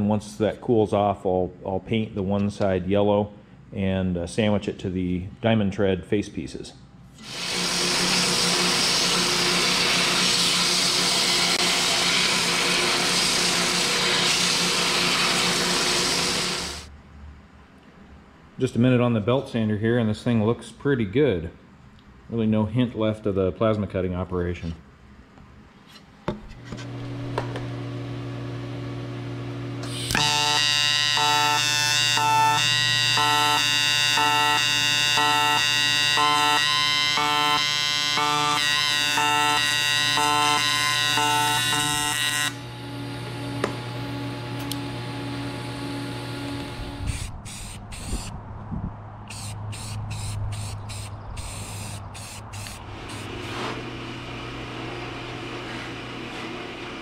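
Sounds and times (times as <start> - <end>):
low electrical hum: 0.0 - 7.3, 15.2 - 57.0
welding arc buzzing: 7.2 - 16.9, 29.5 - 48.4, 49.3 - 55.7.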